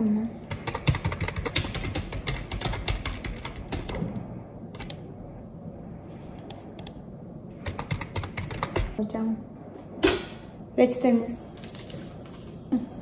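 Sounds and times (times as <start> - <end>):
fast typing on keyboard: 0.5 - 4.2, 7.6 - 9.0.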